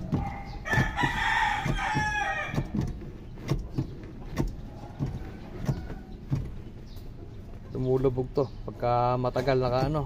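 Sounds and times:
brake pedal knocks: 0.0 - 7.6
rooster crowing: 0.2 - 2.7.

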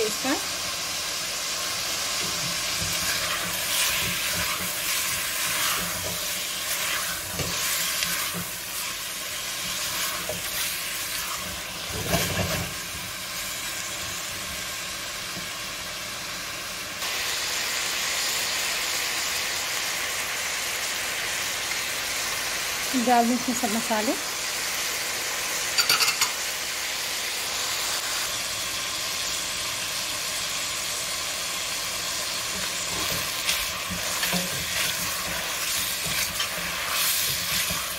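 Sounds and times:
meat sizzling in oil: 0.0 - 37.9
spatula stirring and scraping: 2.2 - 12.9, 32.5 - 37.9.

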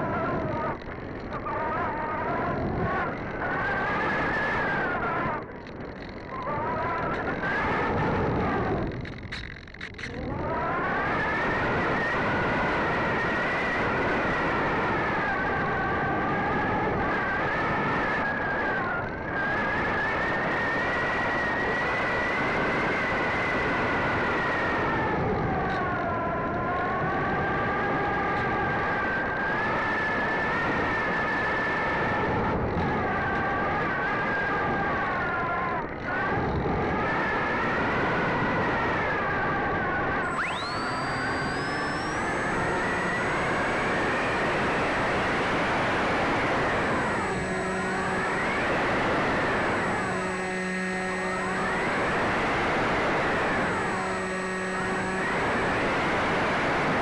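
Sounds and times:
electric motor and propeller whining: 0.0 - 57.0
high tone sweeping up: 40.2 - 57.0.

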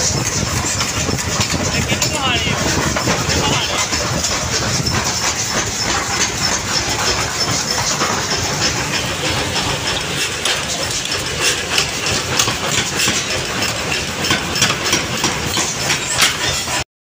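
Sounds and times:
power press running: 0.0 - 16.8.

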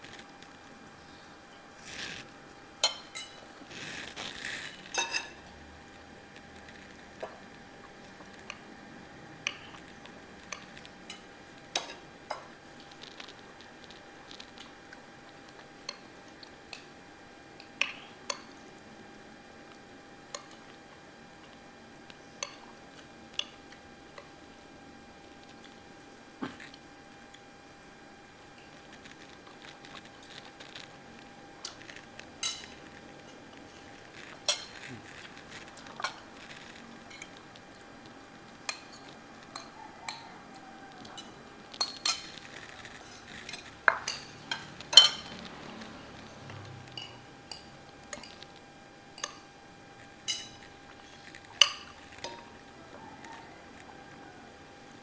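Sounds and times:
spoons clinking on ceramic plates: 2.8 - 3.5, 4.9 - 5.4, 10.5 - 12.5, 32.4 - 32.8, 34.4 - 34.8, 41.1 - 42.4, 43.1 - 45.4, 47.0 - 48.4, 49.2 - 49.5, 50.2 - 50.6, 51.6 - 52.5.

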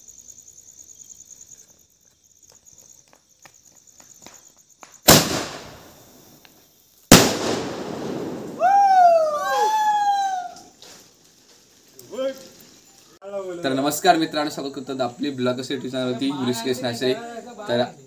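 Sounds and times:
firecracker bangs with crackling: 4.8 - 6.3, 7.1 - 9.1
long high cry: 8.5 - 10.8.

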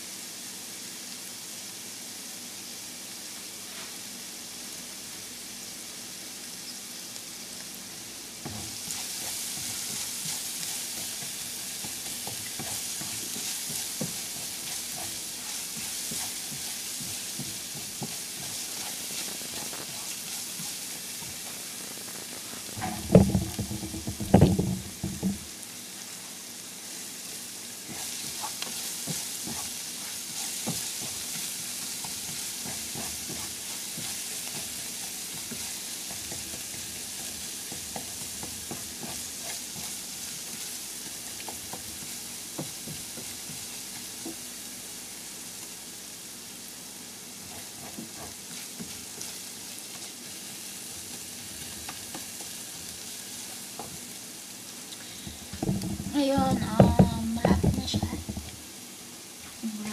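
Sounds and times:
garlic sizzling in frying pan: 0.0 - 59.9
spatula scraping pan: 8.4 - 21.7, 22.4 - 25.4, 27.9 - 44.4, 47.4 - 49.4, 55.2 - 58.5
loud clattering knocks: 22.8 - 25.4, 55.6 - 58.5.

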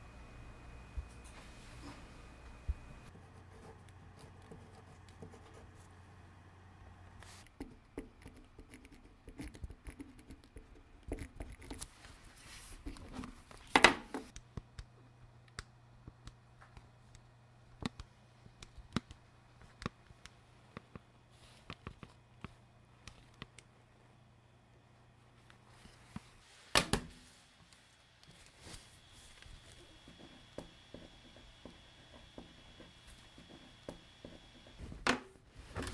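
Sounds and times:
faint low hum: 0.0 - 35.9.

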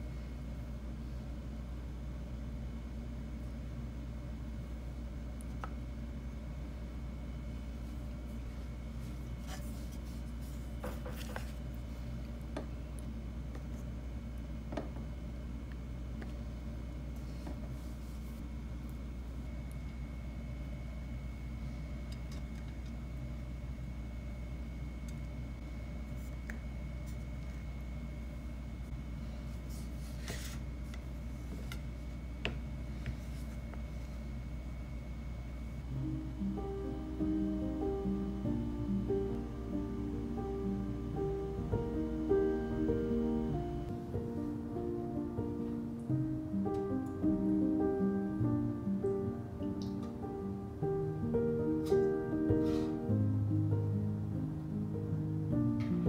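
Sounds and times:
low room hum: 0.0 - 56.0
soft rustle: 7.8 - 12.2, 17.1 - 18.4.

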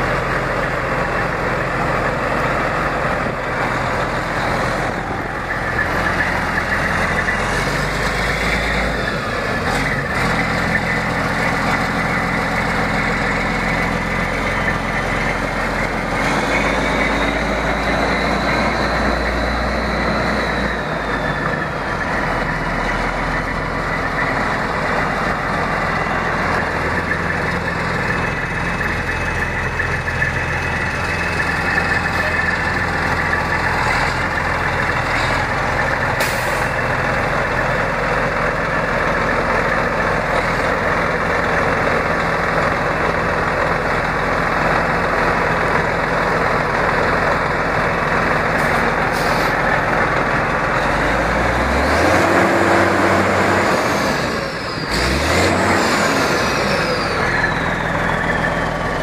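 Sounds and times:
diesel engine idling and revving: 0.0 - 59.0.

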